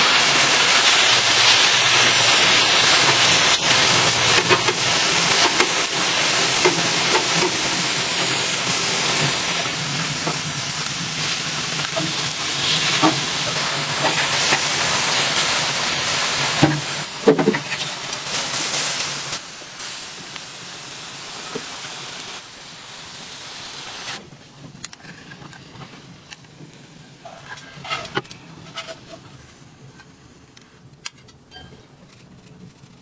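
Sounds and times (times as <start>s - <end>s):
beef sizzling on a griddle: 0.0s - 24.2s.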